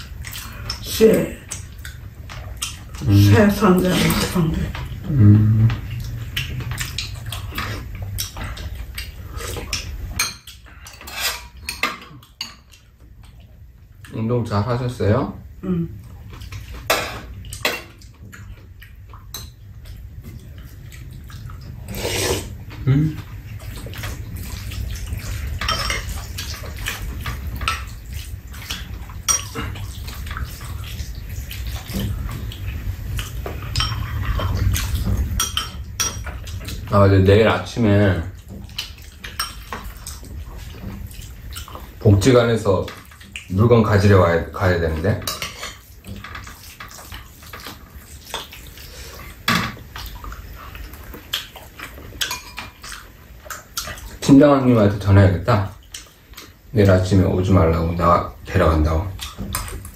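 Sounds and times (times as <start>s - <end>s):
cutlery clinking on ceramic bowls: 9.6s - 12.8s, 25.6s - 26.9s, 28.6s - 29.8s, 33.5s - 34.7s, 35.4s - 36.4s.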